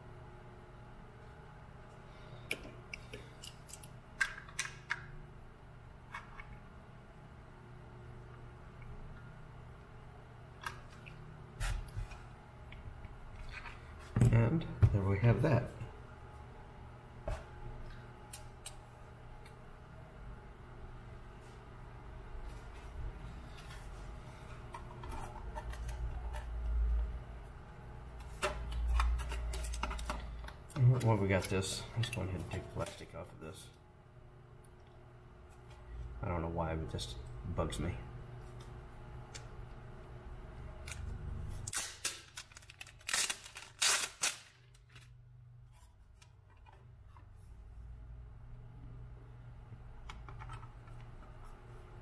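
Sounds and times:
plastic film peeling crackling: 0:41.6 - 0:45.2.

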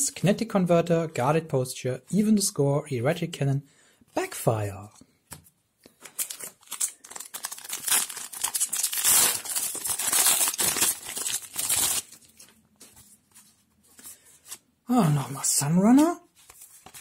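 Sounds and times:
foil pack tearing and crinkling: 0:06.1 - 0:12.4.

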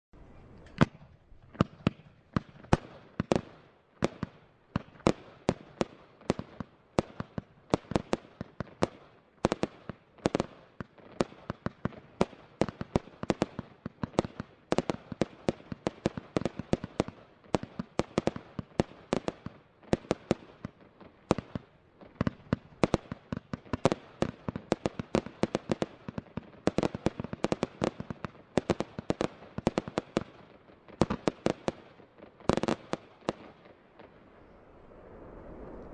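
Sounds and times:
fireworks bangs: 0:00.6 - 0:08.9.

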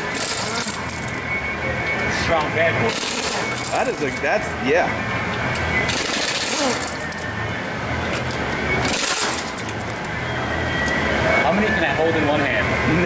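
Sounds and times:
pneumatic impact wrench hammering: 0:00.0 - 0:01.2, 0:02.9 - 0:04.1, 0:05.5 - 0:07.1, 0:08.1 - 0:10.1.

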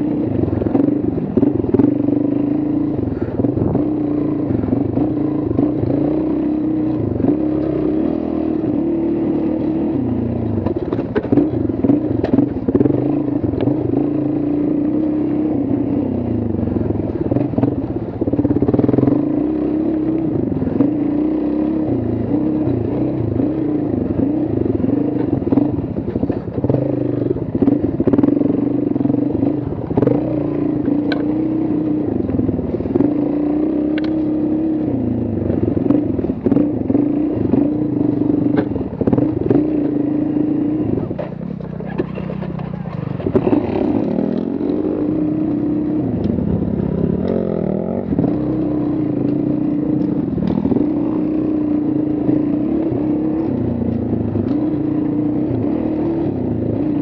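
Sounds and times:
motorcycle engines revving: 0:00.0 - 0:57.0
clatter and sharp ticks: 0:33.9 - 0:34.3.

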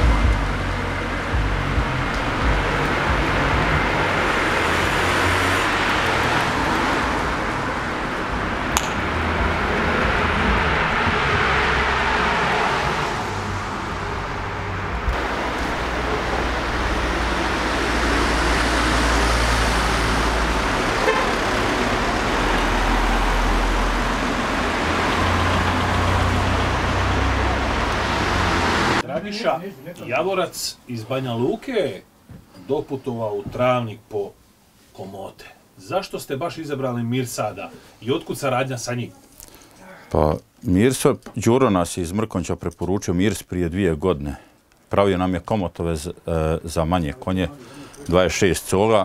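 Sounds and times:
cars passing on road: 0:00.0 - 0:29.0
sharp click: 0:08.8 - 0:09.0.

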